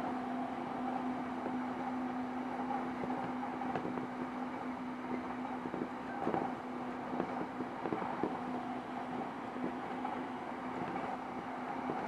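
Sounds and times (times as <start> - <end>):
train hum and rumble: 0.0 - 12.0
wheels clicking on rails: 5.0 - 12.0.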